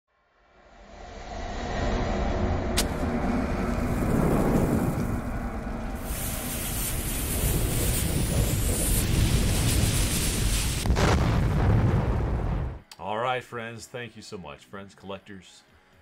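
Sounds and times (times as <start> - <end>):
low rumble: 0.4 - 12.9
bomb fuse crackling hiss: 2.8 - 11.7.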